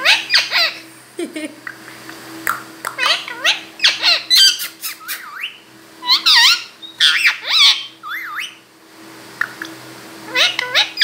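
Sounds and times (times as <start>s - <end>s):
parakeet squawking: 0.0s - 0.8s, 2.9s - 8.6s, 9.4s - 11.0s.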